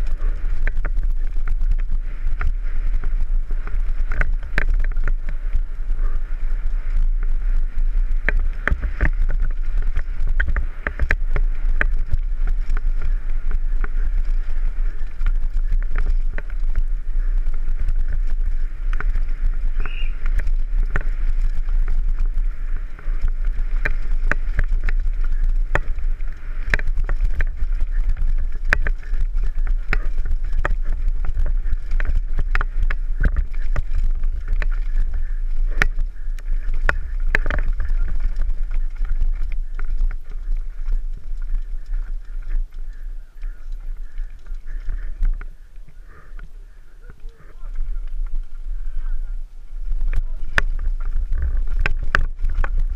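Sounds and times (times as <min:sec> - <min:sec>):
bike rattling and clicking: 0:00.0 - 0:52.9
low rumble: 0:00.0 - 0:52.9.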